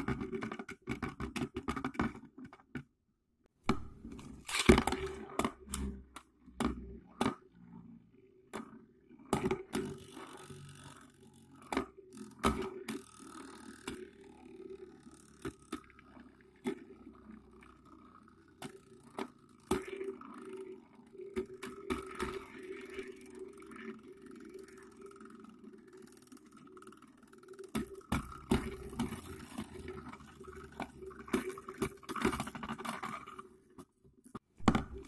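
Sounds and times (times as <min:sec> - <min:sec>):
spinning tops whirring: 0:09.8 - 0:33.6.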